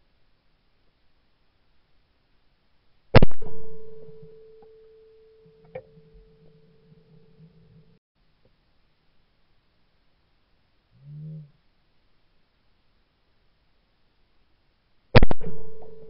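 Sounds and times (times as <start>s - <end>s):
shotgun shot: 3.2s - 4.3s, 15.2s - 16.0s
sharp click: 3.2s - 4.8s, 15.2s - 16.0s
steady ringing tone: 3.4s - 8.0s.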